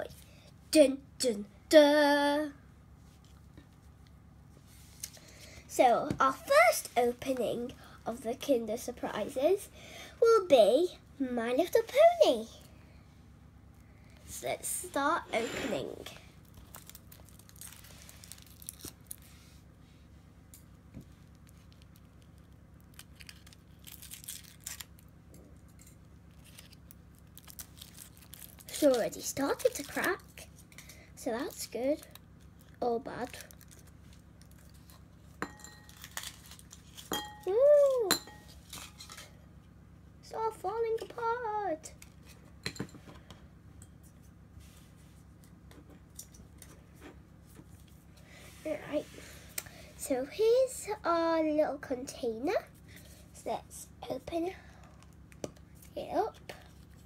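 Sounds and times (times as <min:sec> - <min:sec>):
foil wrapper crinkling: 0:16.4 - 0:19.3, 0:21.3 - 0:25.1, 0:25.8 - 0:30.2, 0:31.6 - 0:35.0, 0:35.8 - 0:37.1.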